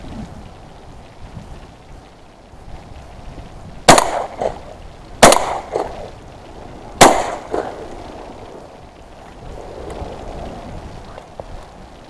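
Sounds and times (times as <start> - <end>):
shotgun shots with echo: 3.9 - 4.6, 5.2 - 6.0, 7.0 - 7.8.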